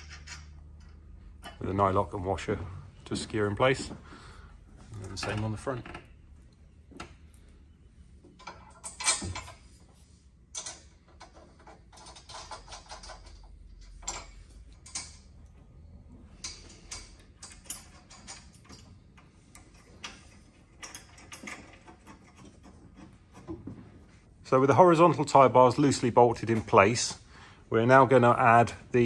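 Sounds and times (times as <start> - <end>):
metal bolts clicking and ticking: 10.5 - 15.5, 16.4 - 22.7.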